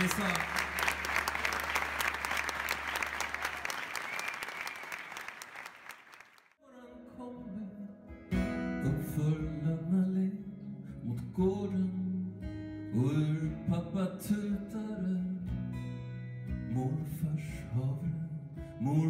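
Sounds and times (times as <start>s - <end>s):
man singing: 6.6s - 8.1s, 8.7s - 15.5s, 16.7s - 19.0s
strummed acoustic guitar: 8.0s - 19.0s.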